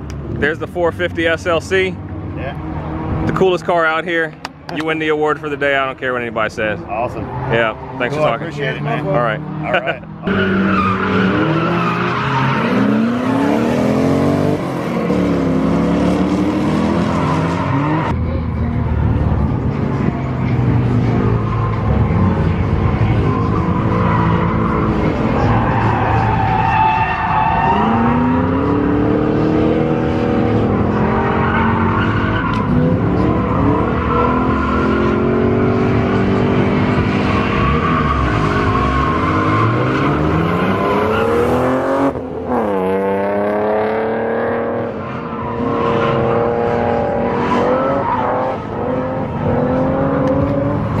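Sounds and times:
car engine revving hard: 7.6 - 18.1, 27.5 - 45.0, 45.6 - 51.0.

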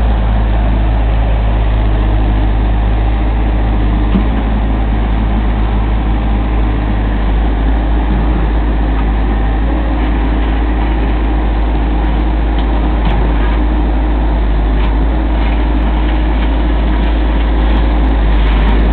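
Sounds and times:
excavator diesel engine running: 0.0 - 18.9
bucket digging soil: 14.6 - 18.9.

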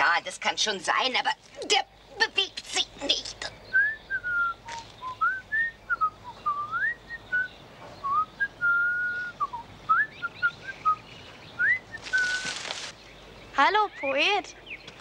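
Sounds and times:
person whistling a tune: 8.1 - 11.0.

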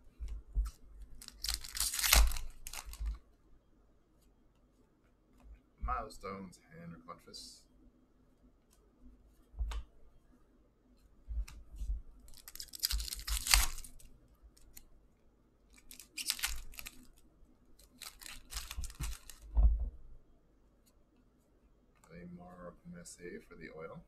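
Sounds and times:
wrapper tearing and crumpling: 1.2 - 3.2, 12.3 - 14.8, 15.7 - 17.2, 17.8 - 19.5
low thumps of cards handled: 9.5 - 9.9, 18.6 - 20.1.

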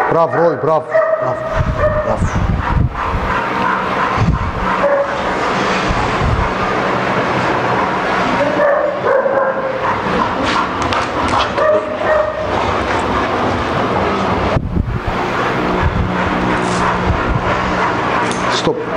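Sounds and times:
dog whining: 0.0 - 6.1, 8.4 - 13.0
dogs barking: 0.0 - 18.9.

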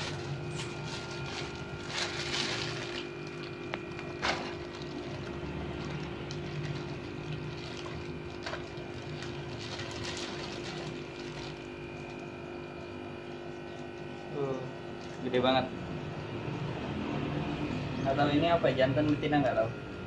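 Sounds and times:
plastic bag crinkling: 0.0 - 12.2
water sloshing and pouring: 0.0 - 12.3
steady background hum: 0.0 - 20.0.

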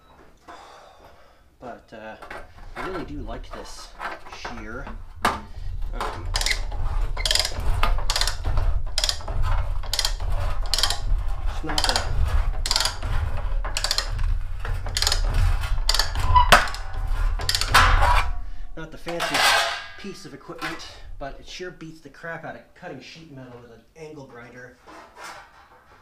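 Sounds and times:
steady low rumble: 4.6 - 19.1
shear cutting sheet metal: 5.5 - 18.4.

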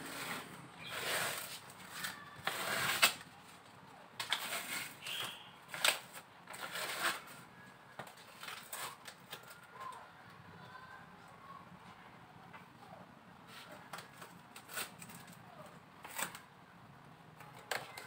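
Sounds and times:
foil insulation sheet crinkling: 8.0 - 9.6.

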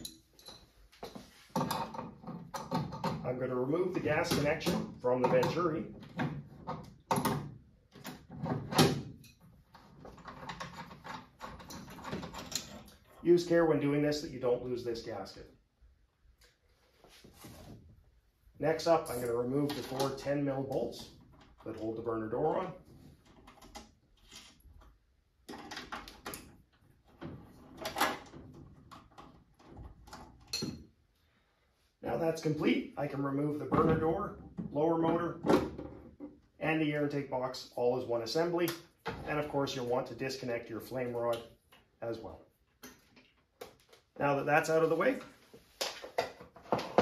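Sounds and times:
metal tools clicking and knocking: 0.0 - 0.7, 19.0 - 20.2.

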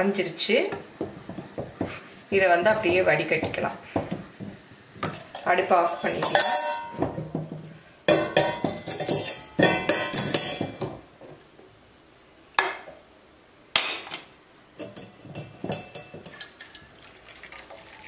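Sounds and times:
metal kitchenware clattering: 5.0 - 7.4, 8.1 - 11.0, 14.8 - 18.0.

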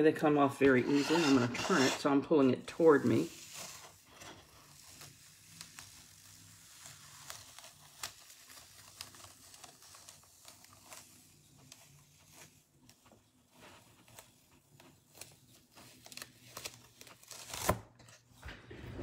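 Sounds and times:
adhesive stencil peeling off: 3.5 - 17.8.

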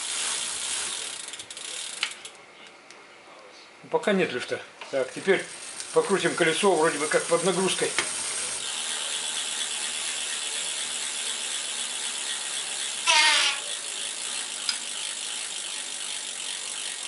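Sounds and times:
bicycle freewheel ticking: 0.0 - 2.4, 5.1 - 17.0
short squeak: 13.1 - 13.7.

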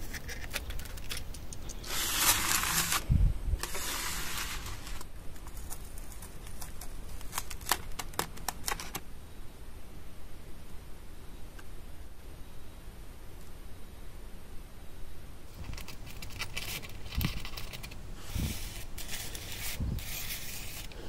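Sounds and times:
hands scraping foam: 0.0 - 6.8, 15.6 - 21.0.

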